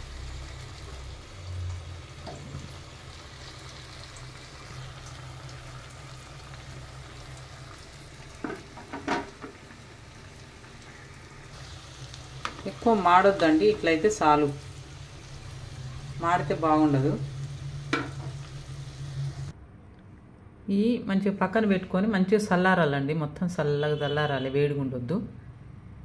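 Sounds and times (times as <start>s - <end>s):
food sizzling in hot oil: 0.0s - 19.5s.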